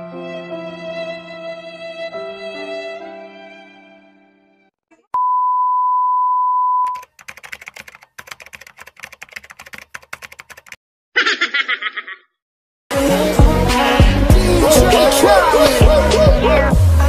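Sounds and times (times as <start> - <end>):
typewriter typing clicks: 7.0 - 10.8
person snickering: 11.2 - 12.3.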